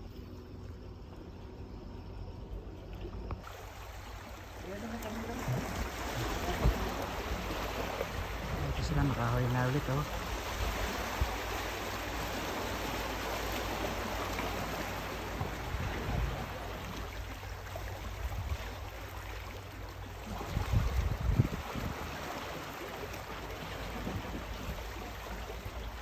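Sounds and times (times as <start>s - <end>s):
water lapping against rocks: 2.6s - 26.0s.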